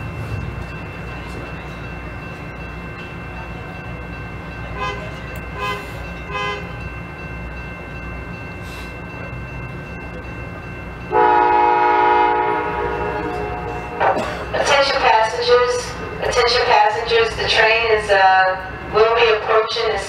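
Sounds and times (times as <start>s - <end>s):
train rumbling: 0.0s - 20.0s
locomotive horn blast: 4.8s - 6.8s, 11.1s - 14.3s.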